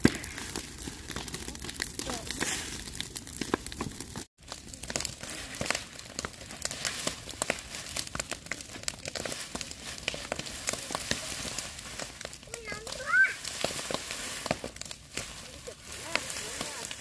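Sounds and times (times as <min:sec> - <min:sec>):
dry grass crackling and rustling: 0:00.0 - 0:17.0
grass fire crackling: 0:00.0 - 0:17.0.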